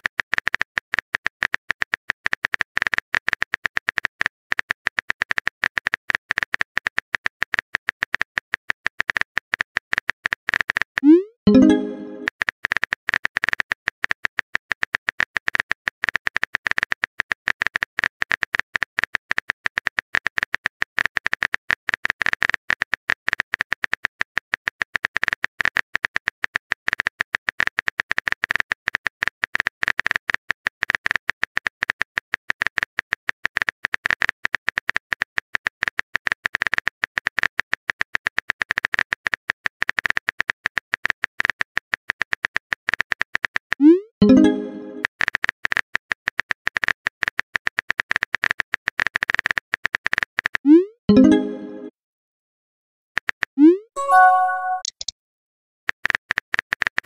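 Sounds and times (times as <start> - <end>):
smartphone keyboard typing clicks: 54.0 - 55.1.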